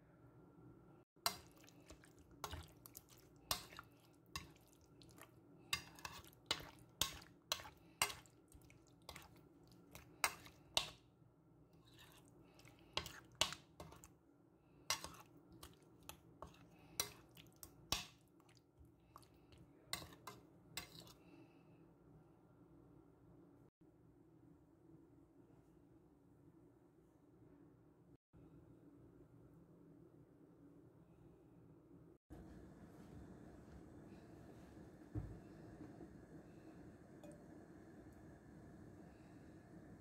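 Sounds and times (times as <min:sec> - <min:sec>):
faint steady hum: 0:00.0 - 0:40.0
wet squelches of meat in marinade: 0:01.3 - 0:10.8.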